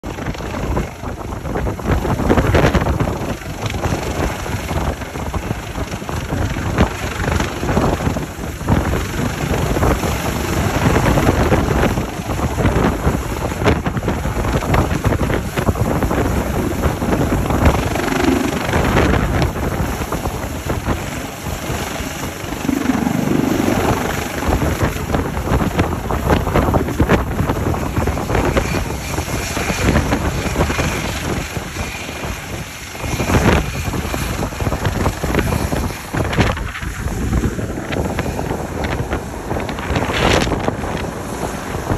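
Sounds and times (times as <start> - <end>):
helicopter rotor and turbine: 0.0 - 41.9
wind buffeting microphone: 0.0 - 41.9.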